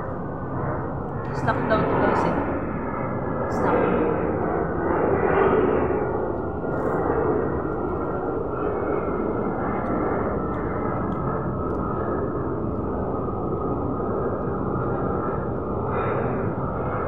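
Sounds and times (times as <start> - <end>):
steady rumbling background noise: 0.0 - 17.0.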